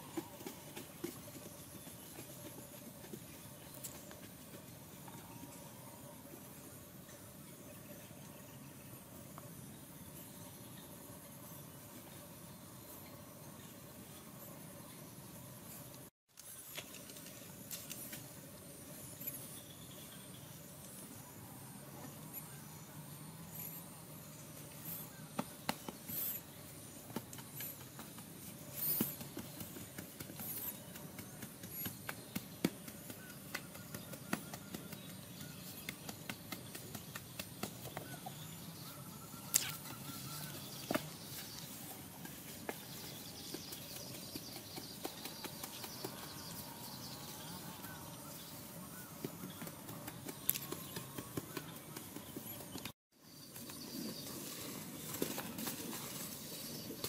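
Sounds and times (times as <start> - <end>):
hoes chopping and scraping soil: 0.0 - 5.3, 23.5 - 57.0.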